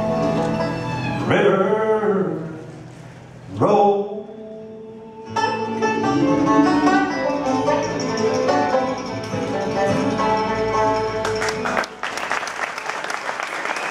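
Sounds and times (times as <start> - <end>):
banjo and acoustic guitar: 0.0 - 1.0, 5.2 - 11.9
audience applause: 11.2 - 13.9.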